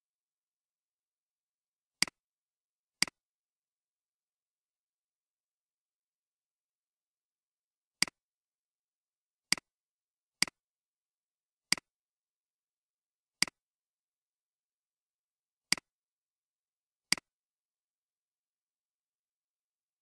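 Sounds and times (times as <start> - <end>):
computer mouse clicks: 15.7 - 15.9.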